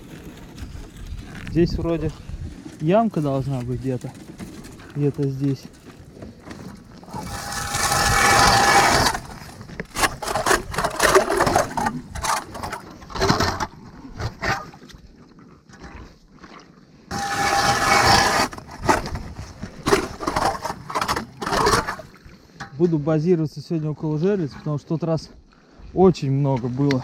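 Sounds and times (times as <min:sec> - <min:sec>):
ice auger crunching through ice: 0:00.0 - 0:14.6, 0:17.1 - 0:22.2.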